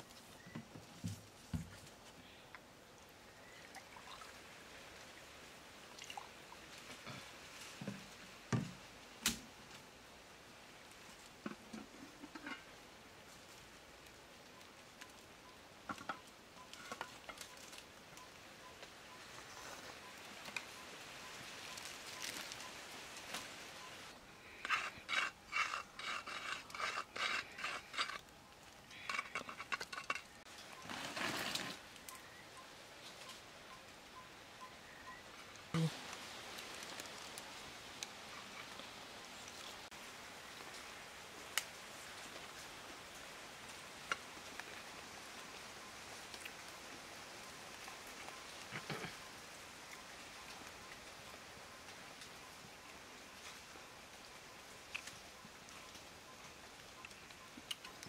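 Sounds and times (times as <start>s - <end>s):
food scraping on a plate: 24.6s - 28.2s.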